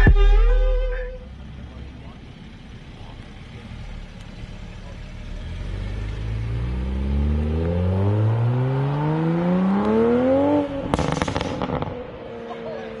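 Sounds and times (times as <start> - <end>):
car exhaust revving: 0.0 - 12.3
exhaust crackles and pops: 2.9 - 5.2, 10.8 - 12.1.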